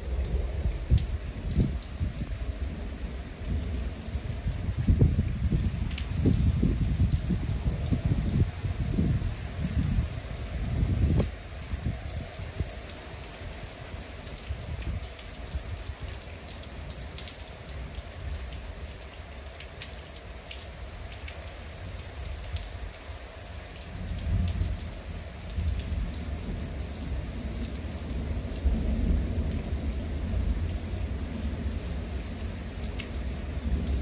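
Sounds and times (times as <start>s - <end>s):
low thunder rumble: 0.0s - 12.7s, 24.0s - 34.0s
steady rain: 0.0s - 34.0s.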